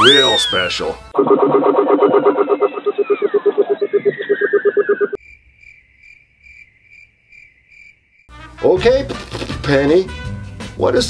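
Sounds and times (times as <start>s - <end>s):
warbling whistle sound effect: 0.0s - 5.2s
cricket chirp effect: 1.2s - 8.3s.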